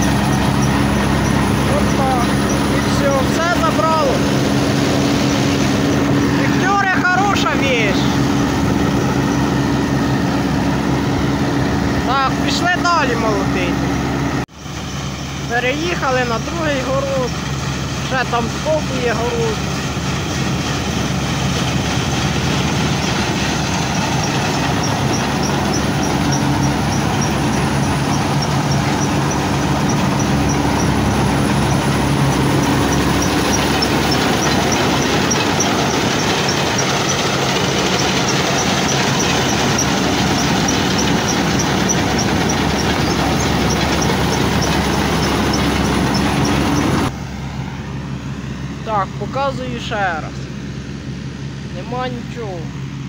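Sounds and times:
combine harvester engine droning: 0:00.0 - 0:53.0
light high ticking: 0:23.0 - 0:47.1.

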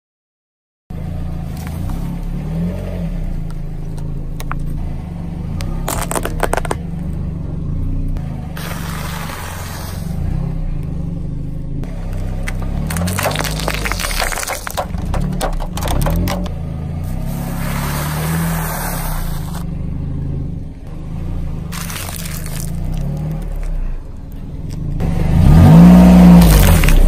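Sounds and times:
cardboard tubes crunching: 0:05.7 - 0:06.8, 0:11.9 - 0:19.6, 0:21.7 - 0:24.0, 0:26.4 - 0:27.0
plastic tubes bursting: 0:05.9 - 0:06.8, 0:12.2 - 0:16.6, 0:21.7 - 0:23.7
ball squashed hissing: 0:08.6 - 0:10.4, 0:17.1 - 0:19.6.

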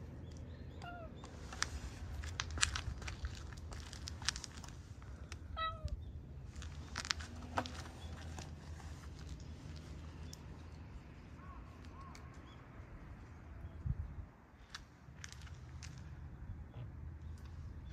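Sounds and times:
cat meowing: 0:05.6 - 0:06.0.

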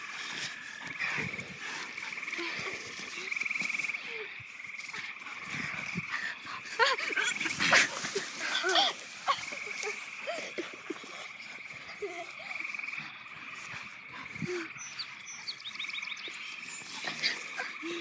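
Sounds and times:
frogs trilling: 0:00.0 - 0:18.0
children's voices: 0:06.0 - 0:13.1.

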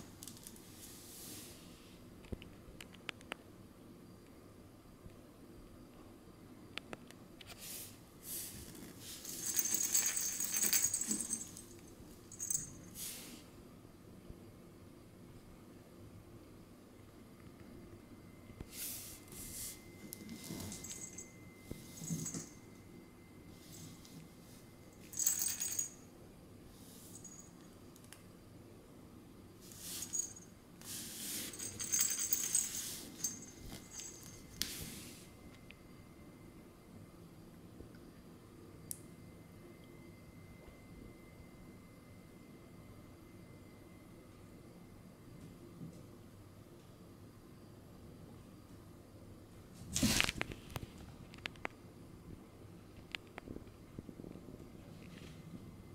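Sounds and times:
plush toy jingling and rattling: 0:09.2 - 0:12.9, 0:20.4 - 0:22.6, 0:25.0 - 0:26.0, 0:27.1 - 0:27.5, 0:30.0 - 0:30.4, 0:31.5 - 0:34.6.

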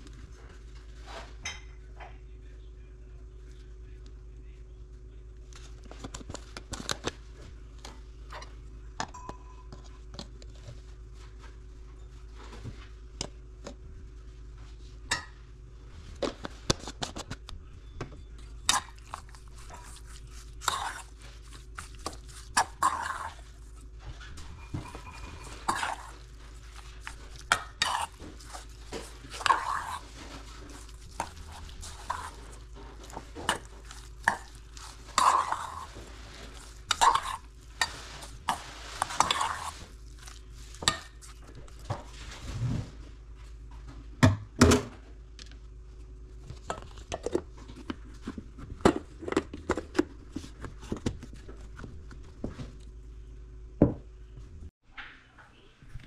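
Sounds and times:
metal spoon scraping metal bowl: 0:18.6 - 0:23.8, 0:24.4 - 0:41.4.

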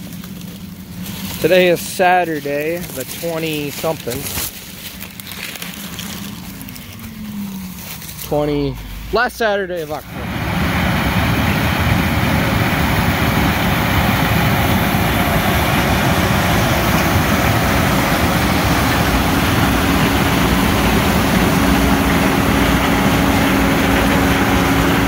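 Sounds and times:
combine harvester running: 0:00.0 - 0:25.0
steady whine: 0:00.0 - 0:25.0.

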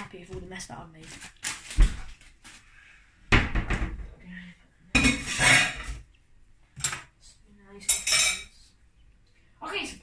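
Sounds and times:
dishes and cutlery clattering: 0:05.0 - 0:06.1, 0:07.8 - 0:08.6.

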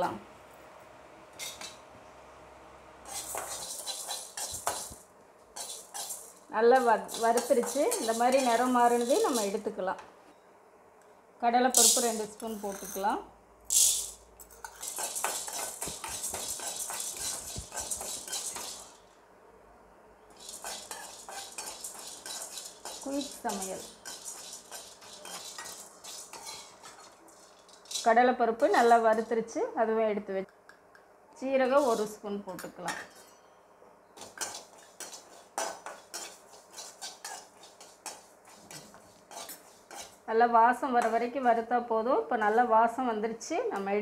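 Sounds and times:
metal spoon scraping lentils in pan: 0:03.0 - 0:09.7, 0:11.8 - 0:13.0, 0:13.7 - 0:19.1, 0:20.3 - 0:29.4, 0:31.7 - 0:32.2, 0:34.2 - 0:40.2.

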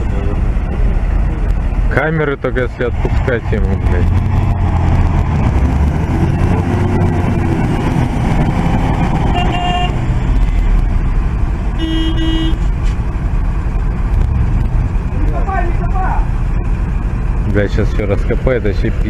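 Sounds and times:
diesel truck engine rumbling: 0:00.0 - 0:19.0
truck horn toots: 0:09.3 - 0:10.0, 0:11.8 - 0:12.7.

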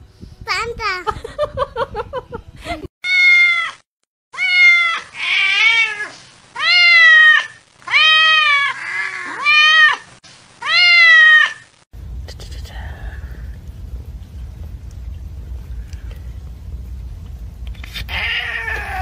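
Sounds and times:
cat meowing: 0:04.4 - 0:10.0, 0:10.6 - 0:11.6, 0:17.9 - 0:19.0.

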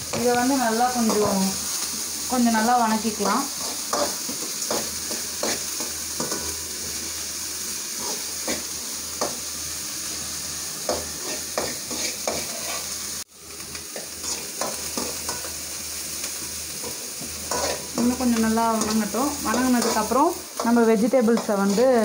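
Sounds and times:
onions sizzling in oil: 0:00.0 - 0:22.0
spoon scraping pan: 0:03.2 - 0:06.6, 0:10.8 - 0:13.0, 0:16.8 - 0:22.0.

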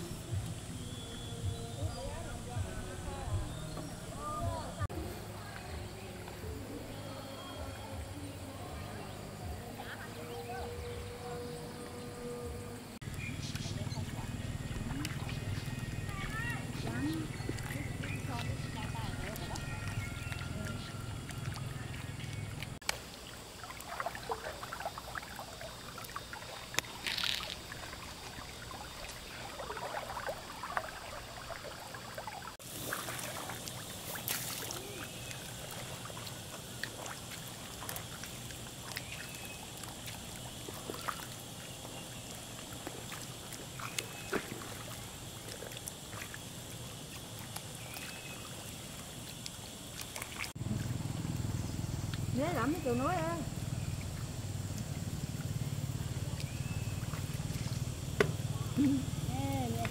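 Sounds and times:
water trickling and sloshing: 0:00.0 - 0:59.9
light splashes: 0:13.1 - 0:59.9.

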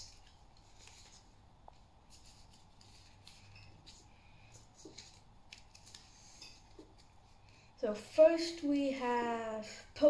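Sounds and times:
cards rustling: 0:00.0 - 0:07.5.

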